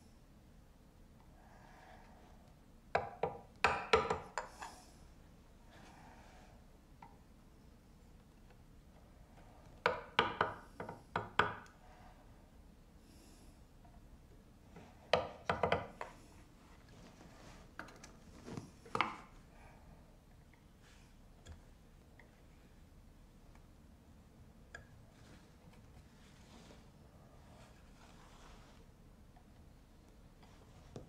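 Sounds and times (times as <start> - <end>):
mallet tapping chisel on wood: 2.9 - 4.5, 9.8 - 11.7, 15.1 - 16.1.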